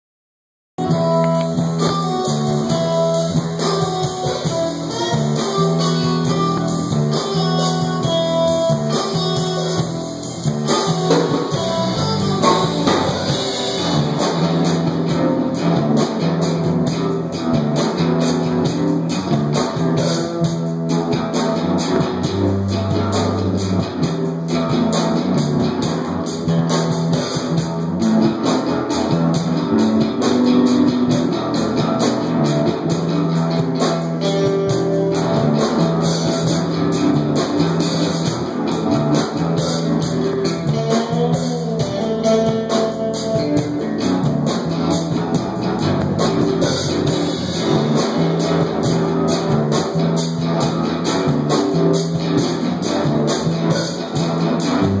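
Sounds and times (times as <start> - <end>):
guitar music with drums: 0.8 - 55.0.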